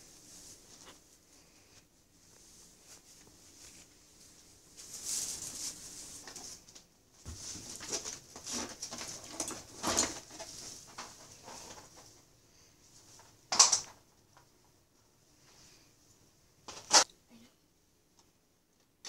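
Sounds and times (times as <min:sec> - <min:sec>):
cables rustling and clinking: 0:04.8 - 0:12.3.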